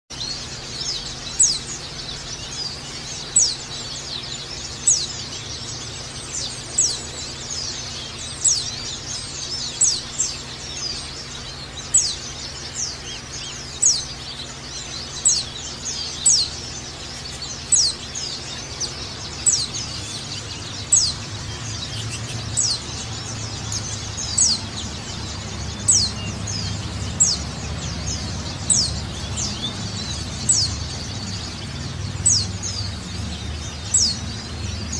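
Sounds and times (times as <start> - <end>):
faint high twittering: 0.1 - 34.9
steady low hum: 0.1 - 34.9.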